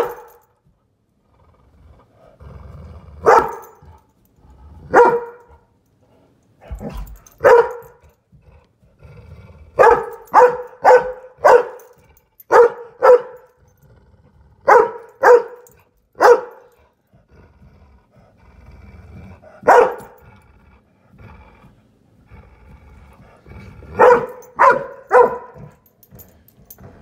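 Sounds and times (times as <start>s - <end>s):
large dog barking: 0.0s - 0.4s, 3.2s - 4.0s, 4.8s - 5.6s, 6.6s - 8.0s, 9.7s - 13.6s, 14.6s - 16.8s, 19.5s - 20.2s, 23.9s - 25.9s.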